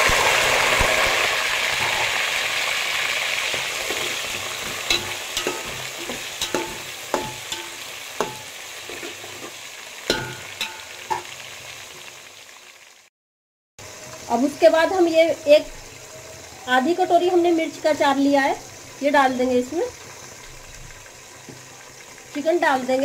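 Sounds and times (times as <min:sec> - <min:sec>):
vegetables sizzling in hot oil: 0:00.0 - 0:13.1, 0:13.8 - 0:23.0
metal spoon clanking against pot: 0:03.5 - 0:09.3, 0:10.1 - 0:11.4.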